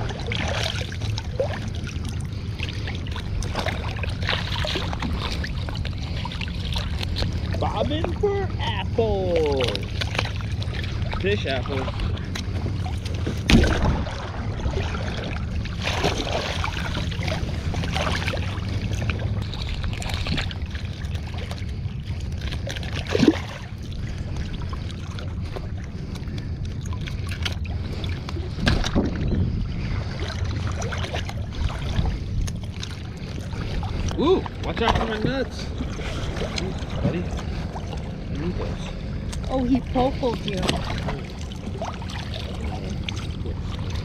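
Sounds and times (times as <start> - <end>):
steady low rumble: 0.0 - 44.0
water sloshing and splashing: 0.0 - 44.0.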